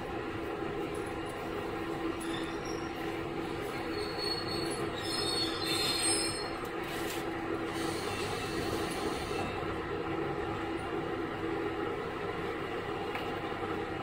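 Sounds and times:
railcar engine drone: 0:00.0 - 0:14.0
wheels squealing on rails: 0:02.0 - 0:09.7.

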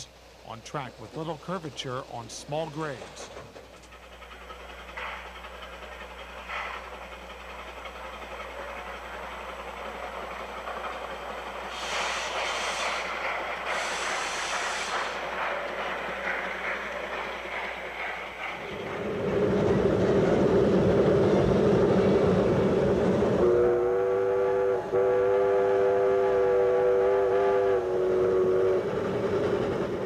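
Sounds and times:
steam locomotive running: 0:00.0 - 0:30.0
steam whistle blowing: 0:23.4 - 0:28.9.

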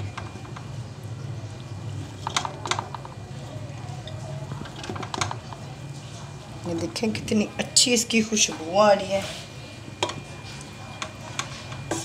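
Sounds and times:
utensils tapping against pot: 0:02.2 - 0:03.2, 0:04.0 - 0:05.7, 0:10.0 - 0:12.0.

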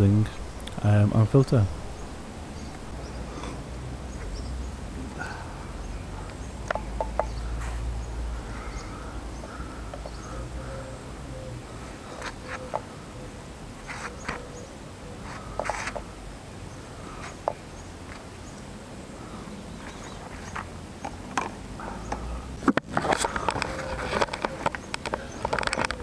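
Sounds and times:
plastic clicks and rustles: 0:19.8 - 0:26.0.

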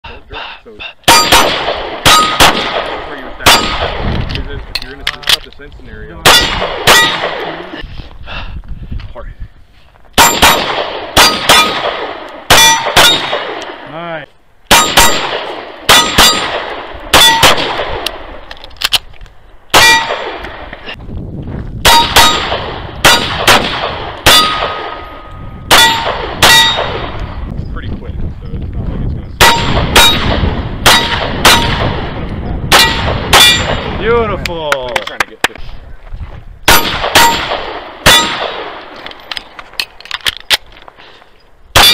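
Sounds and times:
handgun shots: 0:01.1 - 0:04.4, 0:06.2 - 0:07.6, 0:10.2 - 0:13.8, 0:14.7 - 0:18.2, 0:19.7 - 0:20.6, 0:21.8 - 0:25.0, 0:25.7 - 0:27.2, 0:29.4 - 0:32.0, 0:32.7 - 0:33.8, 0:36.7 - 0:40.7.

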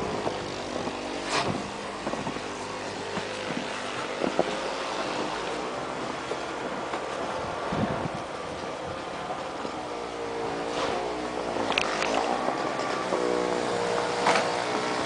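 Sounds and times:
snow shovel scraping: 0:00.0 - 0:07.2, 0:10.6 - 0:15.0
vehicle engine running: 0:00.0 - 0:15.0.

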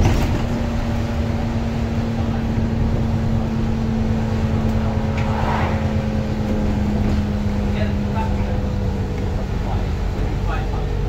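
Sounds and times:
bus engine hum: 0:00.0 - 0:11.0
road rumble: 0:00.0 - 0:11.0.

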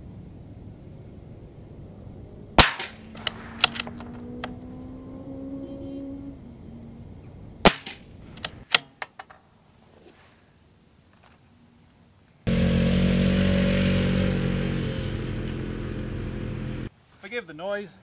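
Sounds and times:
suppressed rifle shots: 0:02.6 - 0:04.2, 0:07.6 - 0:08.6
rifle bolt clicking: 0:03.2 - 0:04.6.

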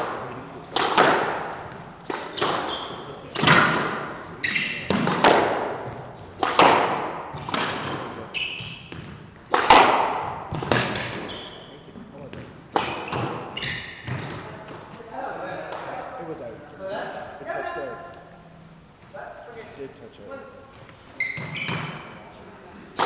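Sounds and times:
squash ball hits echoing: 0:00.0 - 0:11.4, 0:12.2 - 0:14.9, 0:21.4 - 0:22.3
shoes squeaking on wooden floor: 0:01.6 - 0:03.3, 0:04.4 - 0:05.2, 0:07.4 - 0:09.3, 0:10.5 - 0:14.4, 0:20.6 - 0:22.3.

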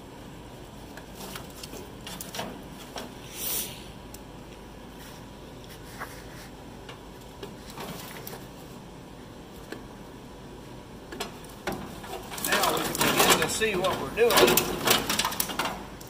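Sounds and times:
steady low hum: 0:00.0 - 0:16.0
clicks and rustles of wires: 0:00.7 - 0:03.2, 0:05.6 - 0:08.8, 0:11.1 - 0:16.0.

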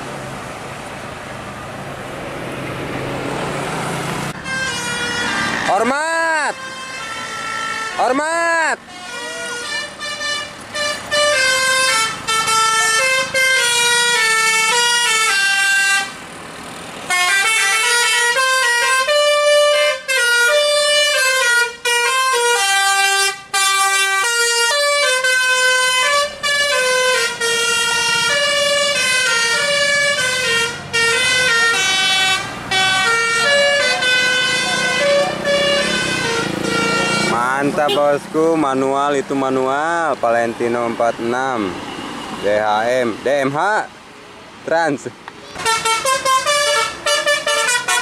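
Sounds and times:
musical air horn melody: 0:04.4 - 0:05.8, 0:06.4 - 0:08.1, 0:08.9 - 0:16.2, 0:17.1 - 0:38.2, 0:45.6 - 0:48.0.

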